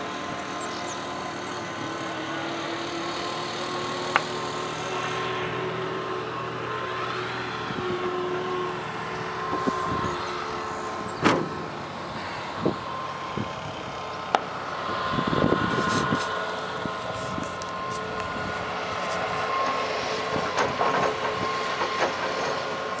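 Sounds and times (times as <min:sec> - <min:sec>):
engine running: 0:00.0 - 0:23.0.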